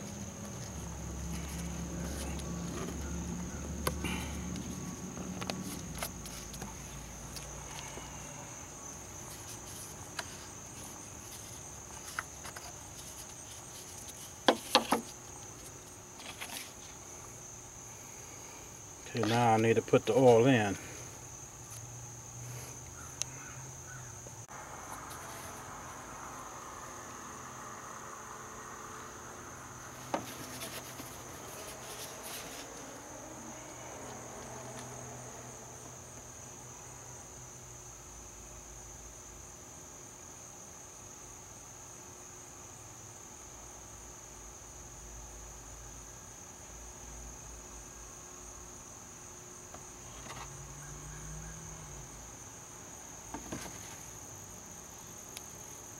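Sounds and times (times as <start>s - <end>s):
insects trilling: 0.0s - 55.9s
faint handling noise: 9.2s - 17.4s, 19.1s - 20.9s, 30.0s - 33.0s, 53.3s - 54.3s.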